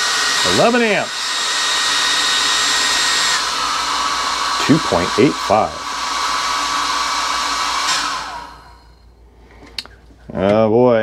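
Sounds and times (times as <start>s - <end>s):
hair dryer blowing and whining: 0.0s - 9.0s.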